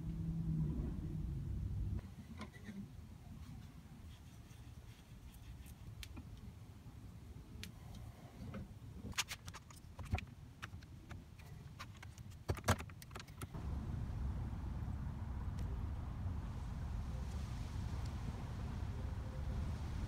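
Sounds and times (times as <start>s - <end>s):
low steady hum: 0.0s - 9.1s, 13.5s - 20.0s.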